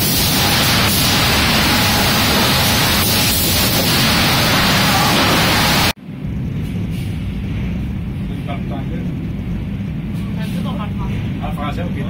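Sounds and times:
sawmill machinery din: 0.0 - 6.0
low hum: 0.0 - 10.2.

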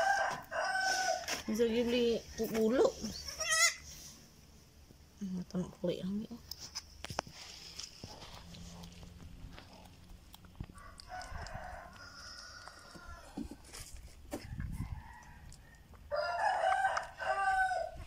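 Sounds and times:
rooster crowing: 0.0 - 1.4, 10.7 - 13.5, 14.7 - 18.0.

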